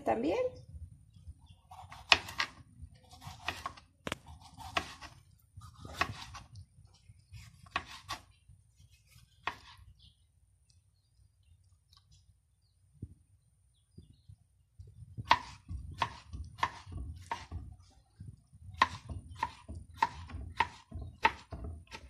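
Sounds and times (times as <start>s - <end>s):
knife slicing tomato: 1.6s - 9.9s, 15.2s - 18.0s, 18.6s - 22.0s.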